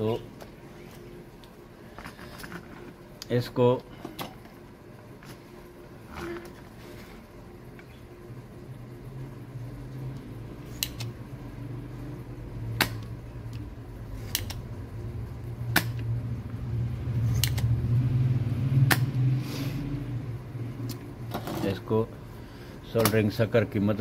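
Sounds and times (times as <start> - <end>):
low hum: 0.0 - 22.9
desoldering pump clicks: 10.2 - 11.2, 14.3 - 14.7, 17.4 - 17.7, 22.9 - 23.4.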